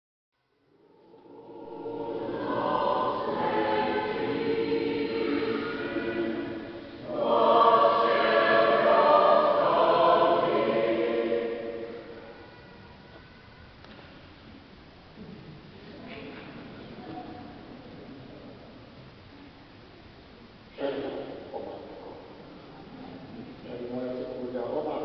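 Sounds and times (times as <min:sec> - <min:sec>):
choir singing: 0:00.7 - 0:12.5.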